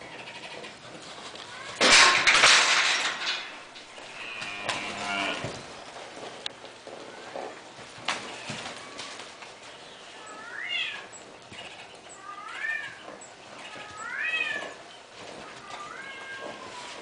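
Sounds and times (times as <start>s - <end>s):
animal calling: 9.8s - 17.0s.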